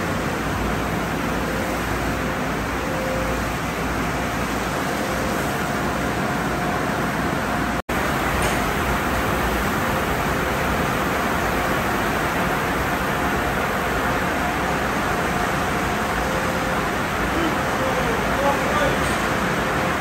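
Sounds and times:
car wash water spray and brushes: 0.0 - 20.0.

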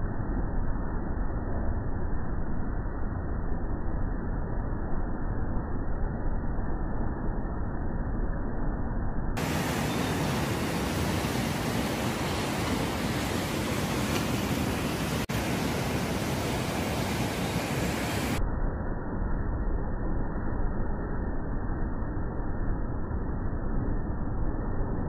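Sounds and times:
steady rushing noise: 9.3 - 20.7.

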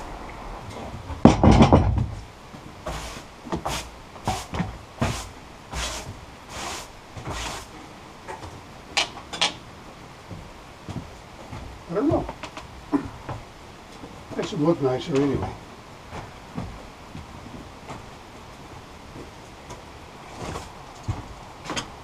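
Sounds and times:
broom sweeping sawdust: 2.9 - 7.7.

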